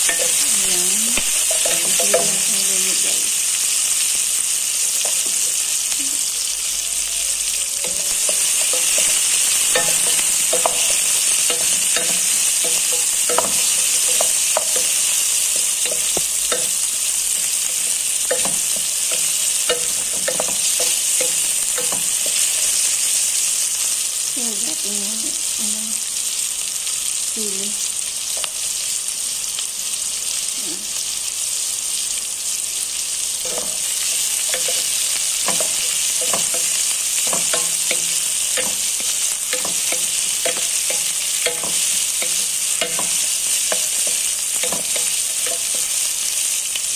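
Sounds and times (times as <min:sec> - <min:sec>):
food sizzling in oil: 0:00.0 - 0:46.9
wooden spatula scraping pot: 0:07.8 - 0:22.9.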